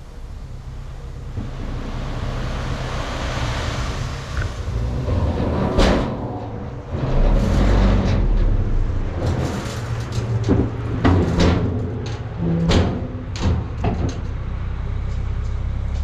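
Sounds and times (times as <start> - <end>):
truck engine running: 0.0 - 16.0
gravel sliding out with rattle: 1.4 - 13.3.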